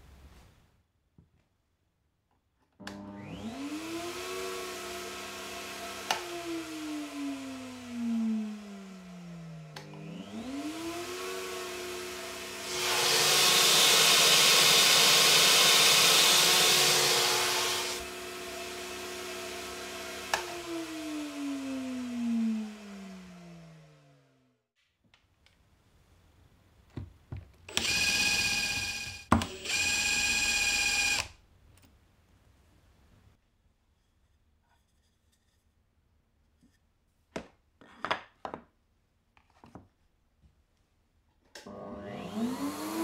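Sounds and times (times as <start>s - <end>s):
router motor spinning: 2.9s - 24.2s, 27.7s - 31.3s, 41.6s - 43.0s.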